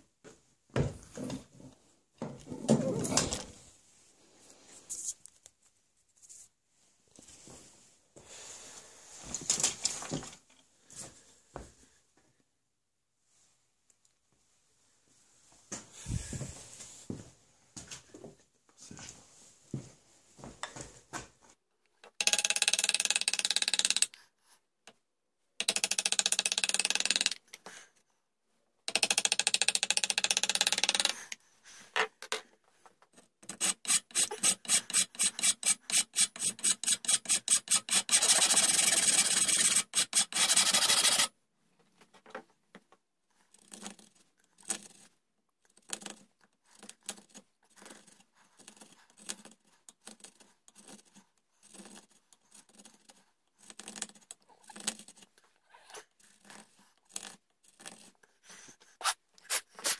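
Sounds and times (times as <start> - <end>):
rasp scraping wood: 33.4 - 41.3.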